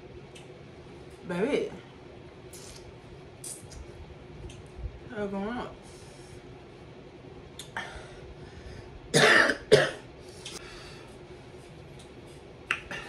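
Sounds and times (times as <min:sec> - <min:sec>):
woman coughing: 0:09.1 - 0:10.0.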